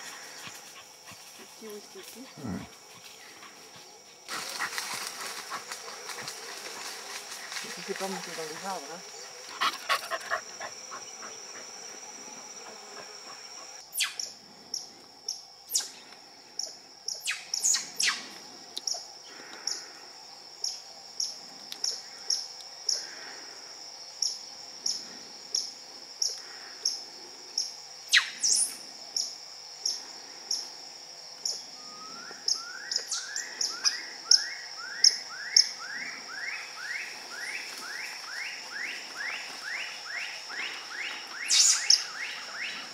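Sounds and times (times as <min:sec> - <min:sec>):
high insect drone: 0:00.0 - 0:42.9
loud sharp bird calls: 0:40.6 - 0:42.8.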